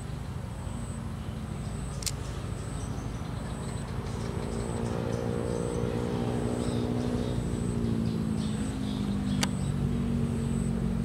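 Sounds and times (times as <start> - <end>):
engine humming: 0.0 - 11.0
sharp click: 2.0 - 2.2.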